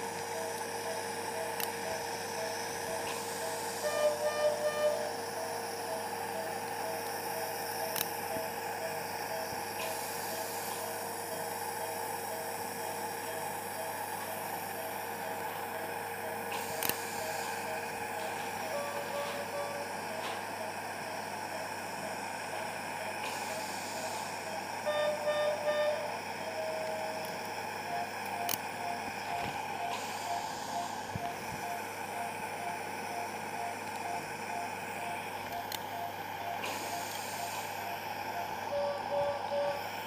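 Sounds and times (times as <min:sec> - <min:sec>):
operating theatre hum: 0:00.0 - 0:40.0
patient monitor beeping: 0:00.2 - 0:09.6, 0:10.2 - 0:40.0
longer multi-tone alarm beep: 0:00.4 - 0:06.6, 0:17.1 - 0:20.7, 0:24.8 - 0:27.2, 0:27.8 - 0:39.8.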